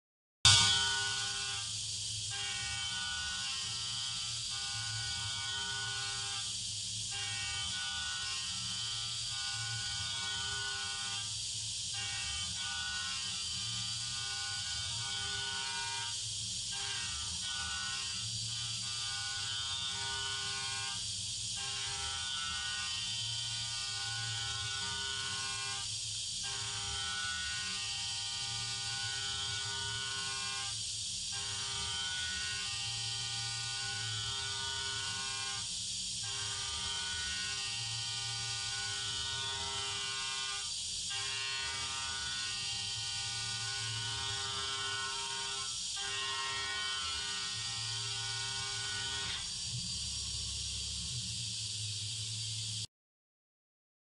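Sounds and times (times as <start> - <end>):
machine spindle whine: 0.5 - 52.9
coolant spray hiss: 49.4 - 52.9.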